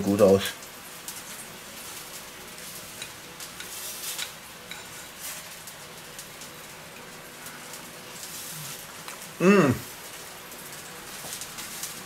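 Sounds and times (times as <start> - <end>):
steady hiss: 0.0 - 12.0
cutlery scraping on plate: 3.0 - 5.1.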